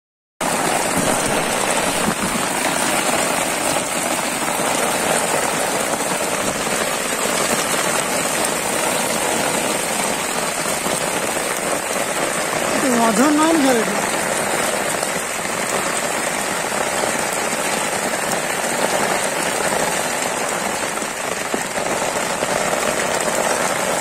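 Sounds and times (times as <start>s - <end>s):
heavy rain on water: 0.4s - 24.0s.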